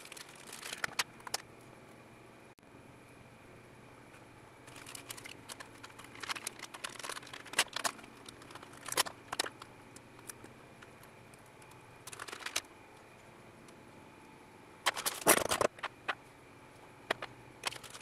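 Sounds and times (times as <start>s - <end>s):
plastic bags crinkling: 0.0s - 1.4s, 4.7s - 10.4s, 12.0s - 12.7s, 14.9s - 16.1s, 17.1s - 18.0s.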